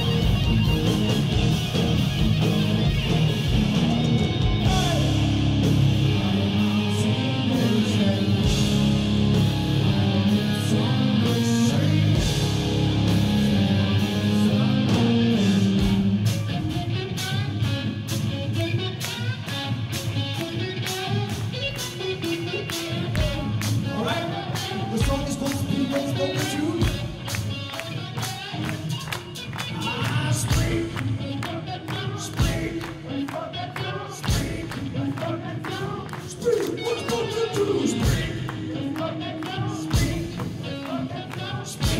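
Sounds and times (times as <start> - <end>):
heavy rock band playing live: 0.0 - 41.9
person singing: 4.6 - 16.3, 22.3 - 27.1.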